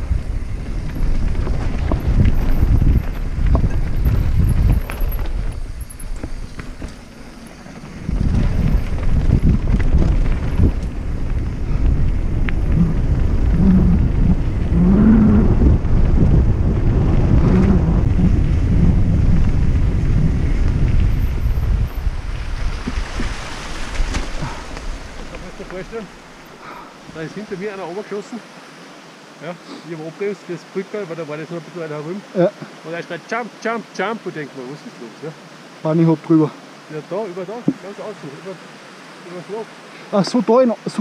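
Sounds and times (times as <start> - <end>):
bike rattling over ground: 0.0 - 26.5
wind on microphone: 0.0 - 26.9.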